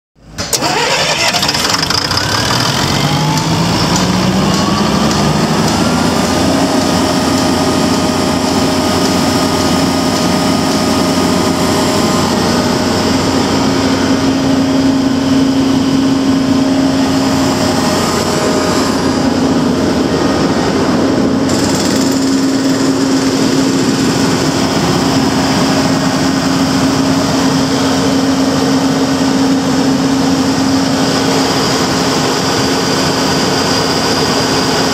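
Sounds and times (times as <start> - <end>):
diesel generator engine running: 0.2 - 34.9.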